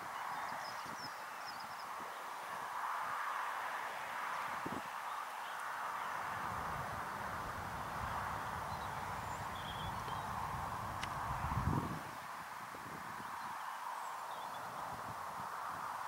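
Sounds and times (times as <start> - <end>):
wind buffeting microphone: 6.1 - 13.5.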